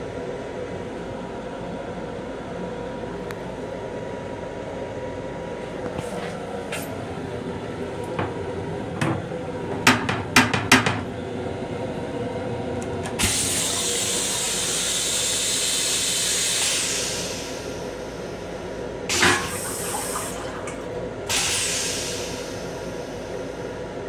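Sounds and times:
train toilet flushing: 0:12.8 - 0:24.0.

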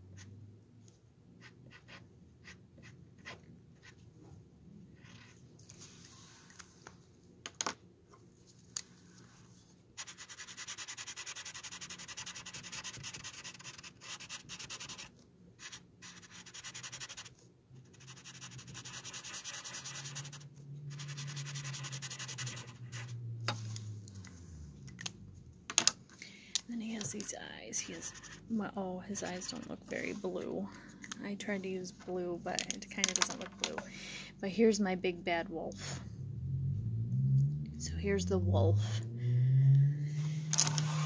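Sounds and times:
marker scribbling on wood: 0:10.0 - 0:17.3, 0:17.9 - 0:23.1.

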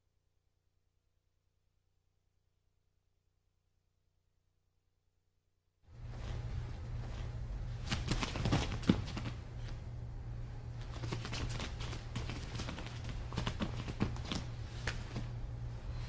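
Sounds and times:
bare feet on a mat: 0:05.9 - 0:09.9, 0:10.8 - 0:16.0
steady low hum: 0:05.9 - 0:16.0.

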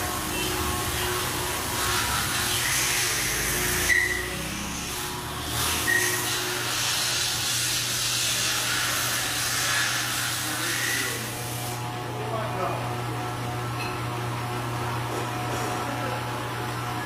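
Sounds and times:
machine hiss over low hum: 0:00.0 - 0:13.7
brief high squeaks: 0:03.8 - 0:04.4, 0:05.7 - 0:06.4.

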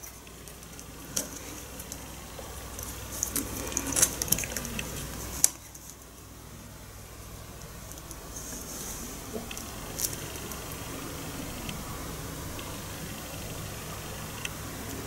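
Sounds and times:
mount clicks and rubbing: 0:00.0 - 0:06.1.

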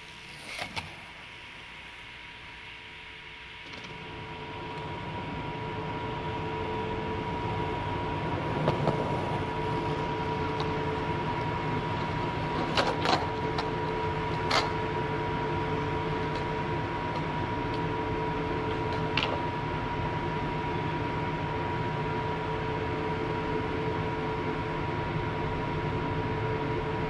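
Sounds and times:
faint steady hum: 0:00.0 - 0:27.0
skateboard rolling on concrete: 0:03.7 - 0:27.0
skateboard clacks: 0:08.5 - 0:14.8.

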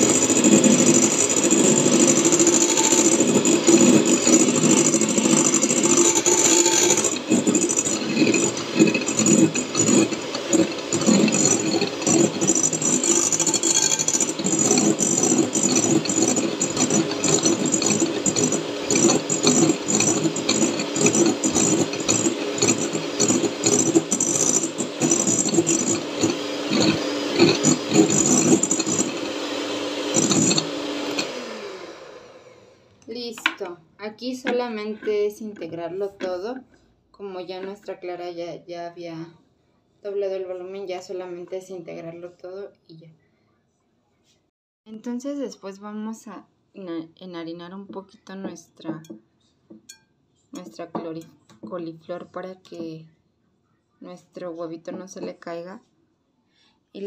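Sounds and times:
beaters rattling against glass bowl: 0:00.0 - 0:31.3
electric hand mixer whirring: 0:00.0 - 0:32.8.

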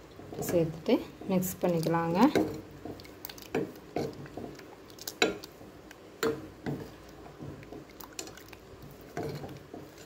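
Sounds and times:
liquid sloshing in pot: 0:00.2 - 0:10.0
ladle scraping metal pot: 0:09.0 - 0:10.0.

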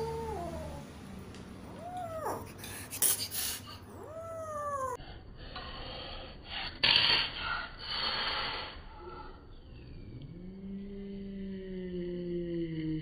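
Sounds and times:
kitten meowing: 0:01.7 - 0:02.5, 0:03.9 - 0:05.0
kitten hissing: 0:01.8 - 0:05.0.

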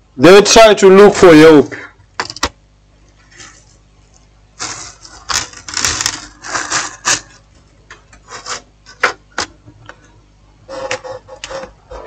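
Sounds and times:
hand scraping over phone and paper: 0:03.2 - 0:07.5, 0:08.1 - 0:09.3, 0:10.7 - 0:12.0.

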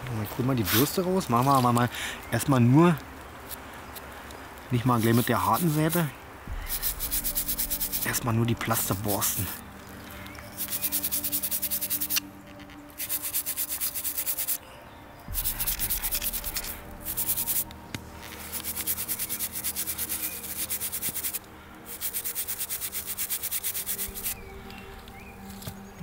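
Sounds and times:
brush scrubbing metal: 0:04.9 - 0:09.6, 0:10.5 - 0:12.2, 0:13.0 - 0:14.6, 0:15.3 - 0:24.4.

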